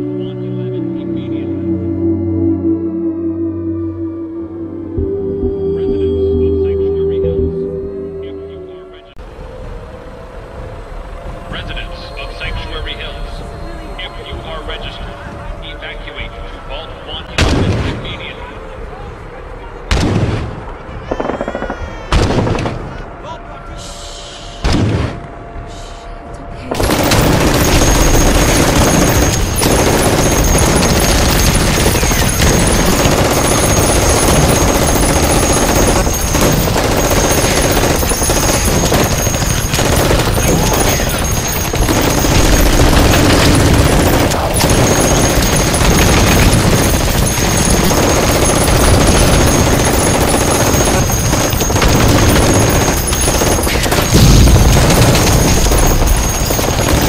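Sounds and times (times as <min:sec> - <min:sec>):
rapid gunfire: 0:19.9 - 0:23.0, 0:26.7 - 0:57.0.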